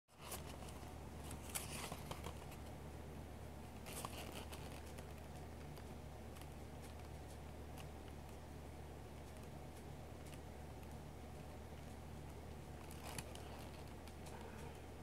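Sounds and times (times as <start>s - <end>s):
paper crinkling and rustling: 0.1s - 2.7s, 3.7s - 7.9s, 12.7s - 14.6s.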